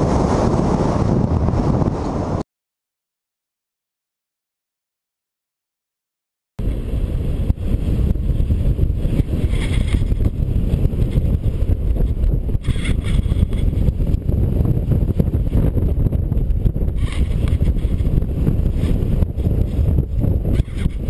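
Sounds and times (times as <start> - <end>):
wind buffeting microphone: 0.0 - 2.4, 6.6 - 21.0.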